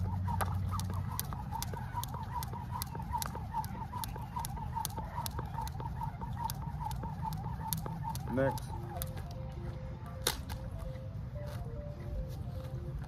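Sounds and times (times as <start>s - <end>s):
jump rope slapping the ground: 0.0s - 9.3s, 10.2s - 10.6s.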